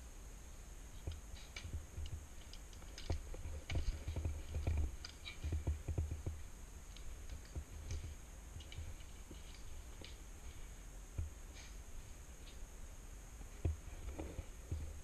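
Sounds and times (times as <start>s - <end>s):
gear clicking and knocking: 1.1s - 10.2s.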